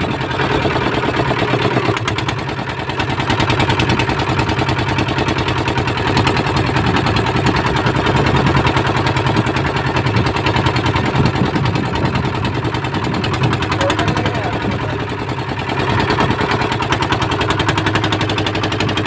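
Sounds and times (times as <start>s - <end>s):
boat engine chugging: 0.0s - 19.0s.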